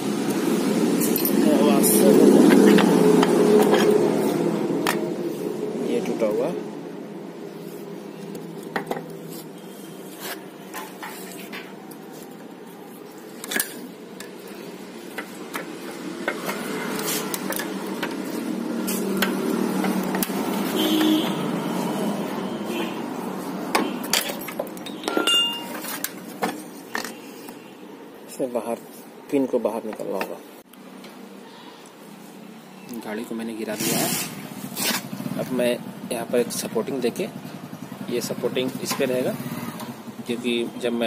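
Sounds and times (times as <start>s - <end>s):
metal clinks and knocks: 23.8s - 27.2s.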